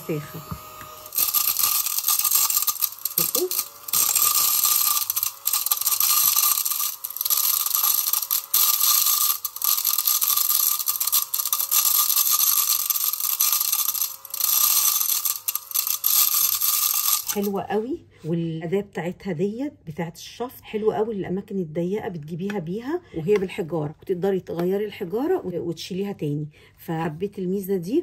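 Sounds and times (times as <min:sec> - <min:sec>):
mini vacuum whine and hiss: 0:00.0 - 0:02.4
rice grains rattling: 0:01.0 - 0:17.5.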